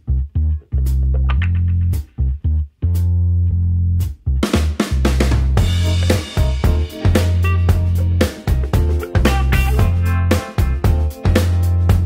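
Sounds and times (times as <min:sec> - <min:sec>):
bass line: 0:00.0 - 0:12.0
drum kit playing a steady beat: 0:04.0 - 0:12.0.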